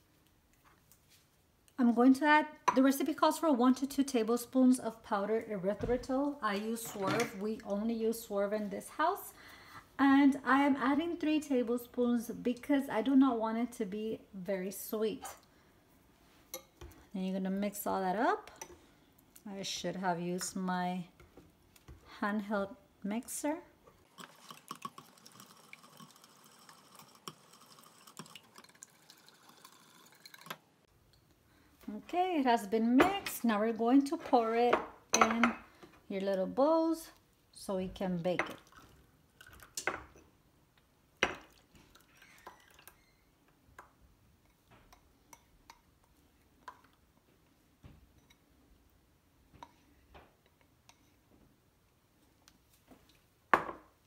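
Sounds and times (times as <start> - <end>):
dishes and utensils clinking: 6.8 - 7.4.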